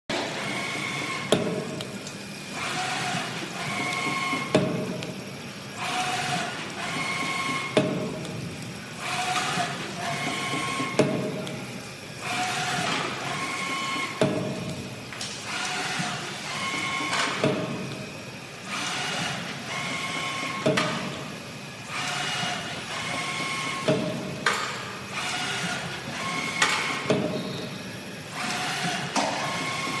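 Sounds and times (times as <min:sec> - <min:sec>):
steady machine whine: 0:00.1 - 0:30.0.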